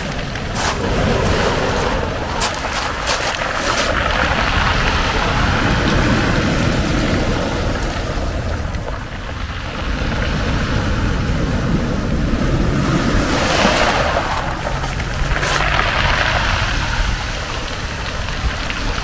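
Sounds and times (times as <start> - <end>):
foam hissing across stones: 0.0 - 6.1
surf breaking on pebble beach: 0.0 - 19.0.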